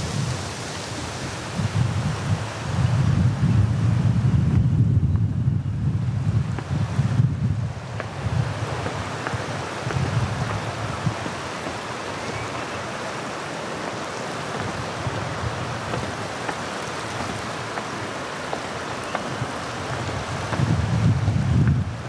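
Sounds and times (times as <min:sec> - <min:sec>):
water rushing: 0:00.0 - 0:04.4, 0:06.0 - 0:22.0
wind rumble on microphone: 0:00.0 - 0:22.0.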